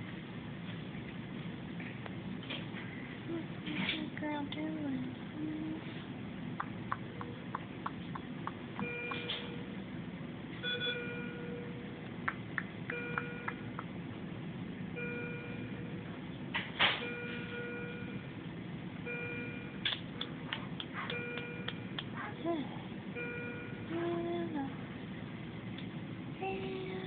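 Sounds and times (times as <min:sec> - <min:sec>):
monitor alarm beeping: 0:08.8 - 0:09.8, 0:10.6 - 0:11.9, 0:12.9 - 0:13.8, 0:15.0 - 0:16.1, 0:17.0 - 0:18.4, 0:19.0 - 0:19.8, 0:21.0 - 0:22.0, 0:23.1 - 0:23.9.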